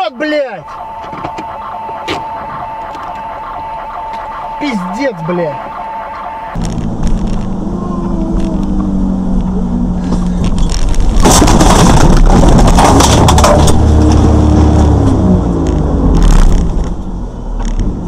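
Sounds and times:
vehicle collision crunching: 0:00.5 - 0:07.6, 0:10.1 - 0:14.4
vehicle engine running: 0:00.6 - 0:17.8.

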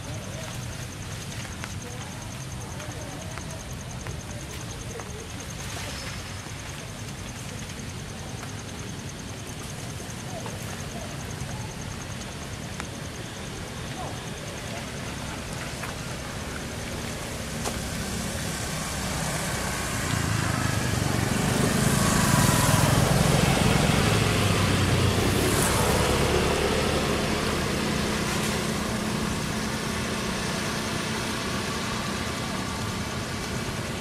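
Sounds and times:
vehicle engine rumble passing: 0:04.9 - 0:34.0.

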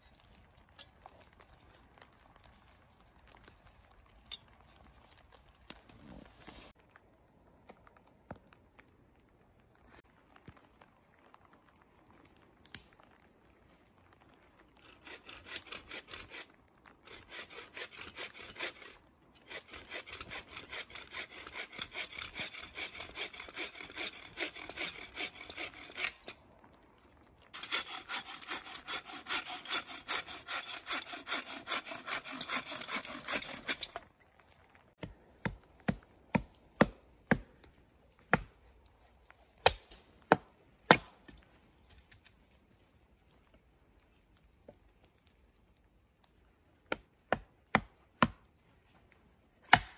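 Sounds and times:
saw cutting through branch: 0:14.9 - 0:16.5, 0:17.1 - 0:26.4, 0:27.6 - 0:34.0
hatchet chopping wood: 0:35.0 - 0:37.5, 0:39.6 - 0:41.2, 0:46.9 - 0:48.4, 0:49.6 - 0:49.9.

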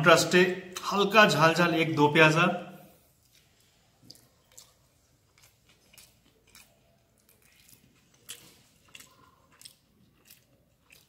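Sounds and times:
person chewing rice: 0:03.0 - 0:11.0.

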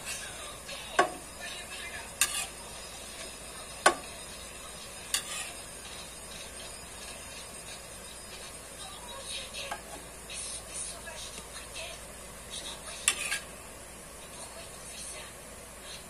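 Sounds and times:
sauce sizzling in pan: 0:00.0 - 0:15.8
metal spoon clinking on frying pan: 0:05.1 - 0:05.5.

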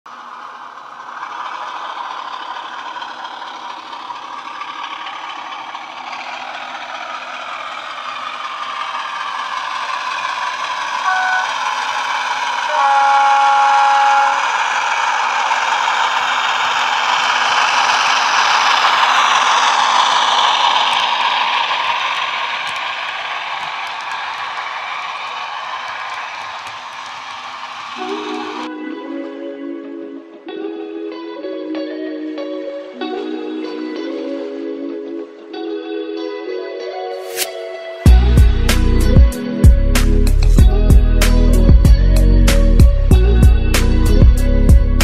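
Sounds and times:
model wheels rattling on track: 0:00.1 - 0:12.7, 0:13.7 - 0:28.7
model diesel engine sound: 0:00.1 - 0:28.7, 0:37.3 - 0:45.0
locomotive horn: 0:11.0 - 0:15.0.

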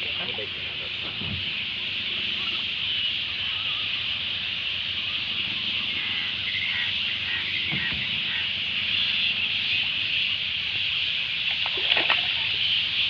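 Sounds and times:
high-pitched hiss: 0:00.0 - 0:13.0
water splashing and dripping: 0:10.4 - 0:13.0.

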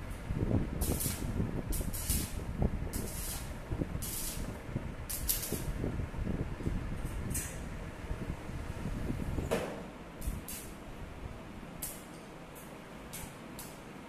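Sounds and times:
welding arc crackling and sizzling: 0:00.0 - 0:07.8, 0:10.2 - 0:11.0, 0:11.8 - 0:13.9.

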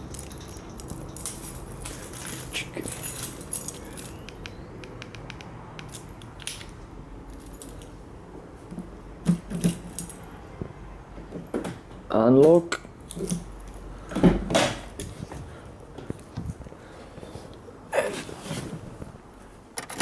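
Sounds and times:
keys jangling: 0:00.0 - 0:04.2, 0:07.3 - 0:07.9.

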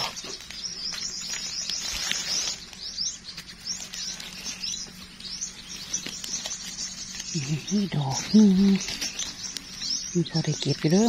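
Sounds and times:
bird chirping: 0:00.0 - 0:11.0.

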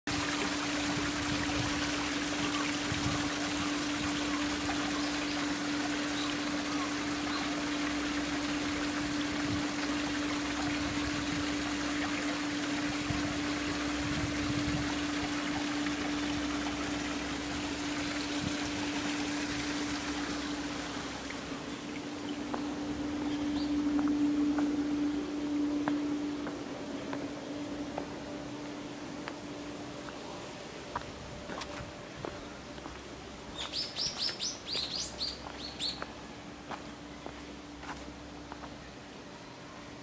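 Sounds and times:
water splashing over stones: 0:00.1 - 0:22.8
steady hum: 0:00.1 - 0:40.0.

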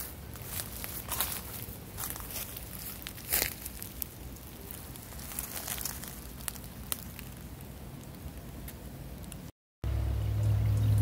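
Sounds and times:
footsteps crunching dry leaves: 0:00.0 - 0:07.5.

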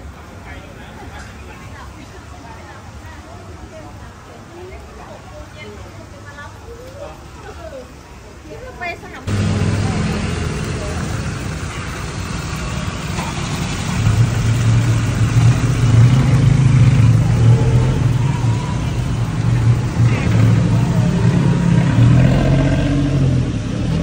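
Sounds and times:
street noise: 0:00.0 - 0:24.0
vehicle engine humming: 0:09.2 - 0:24.0.

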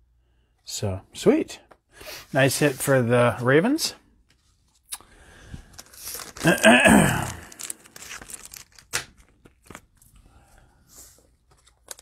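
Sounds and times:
plastic wrapping crinkling: 0:05.6 - 0:10.2.

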